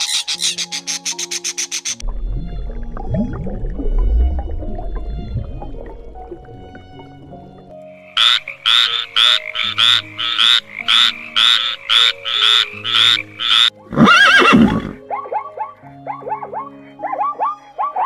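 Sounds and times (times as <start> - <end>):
soft background music: 0.0 - 18.0
frog croaking: 7.9 - 13.7
zebra whinnying: 12.6 - 15.0.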